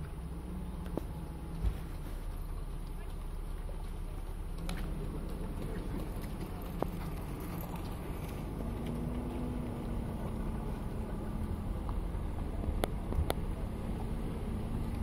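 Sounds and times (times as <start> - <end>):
muffled horse hoofbeats cantering: 0.0 - 15.0.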